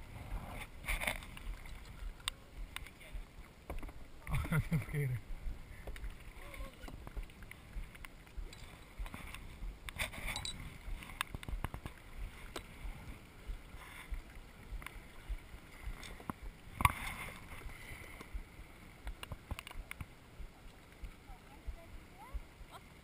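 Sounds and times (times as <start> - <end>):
kayak paddle strokes: 0.0 - 23.0
water sounds: 0.0 - 23.0
small clicks and knocks: 19.0 - 20.1.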